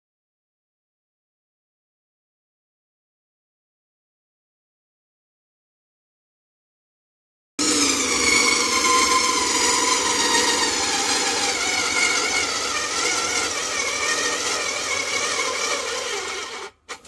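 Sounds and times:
electric motor whining: 0:07.6 - 0:17.0.

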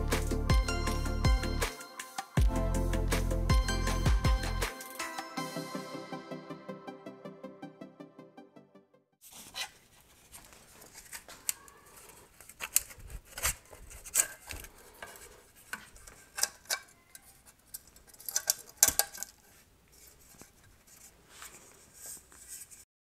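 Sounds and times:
metal parts clinking and scraping: 0:13.9 - 0:19.5.

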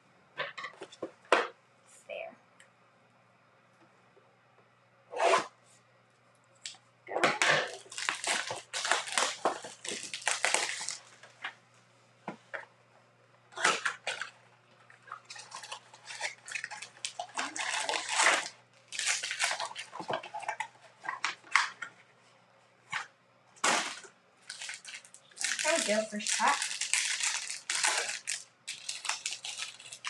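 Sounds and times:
cardboard and wrappers rustling: 0:07.3 - 0:11.5, 0:13.6 - 0:22.0, 0:22.9 - 0:30.0.

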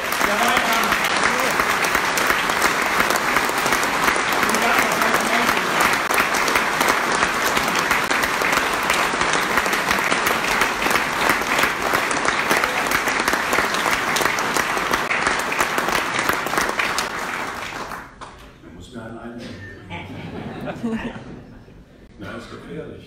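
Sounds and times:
audience applauding: 0:00.0 - 0:18.4.

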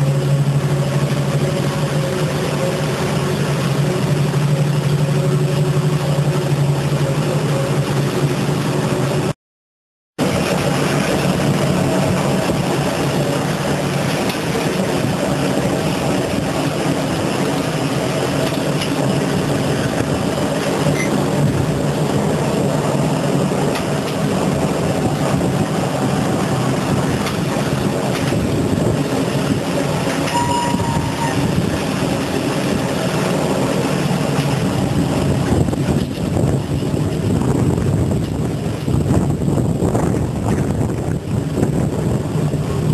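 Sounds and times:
factory machine drone: 0:00.0 - 0:09.4, 0:10.2 - 0:42.9
high squeal: 0:30.2 - 0:31.6.

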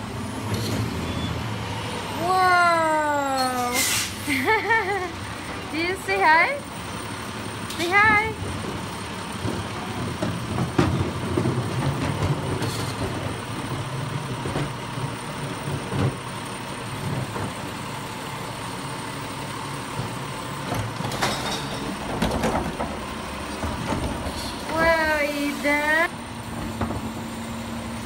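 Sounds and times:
garbage truck engine idling: 0:00.0 - 0:28.0
trash carts clanking: 0:02.9 - 0:28.0.

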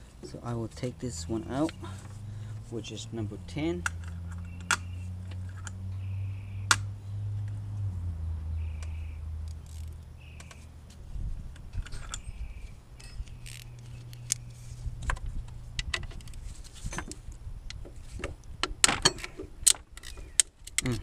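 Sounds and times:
low steady hum: 0:00.0 - 0:19.7
hand tools clinking and rattling: 0:11.6 - 0:12.4, 0:13.0 - 0:14.5.

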